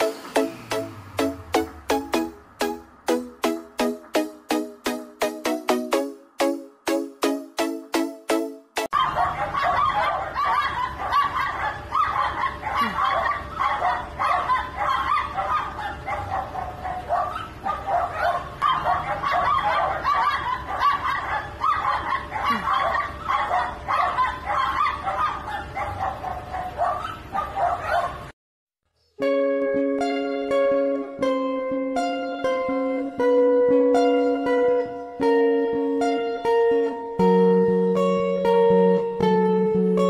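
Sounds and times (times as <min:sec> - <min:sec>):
small dog barking and whining: 0:08.9 - 0:28.3.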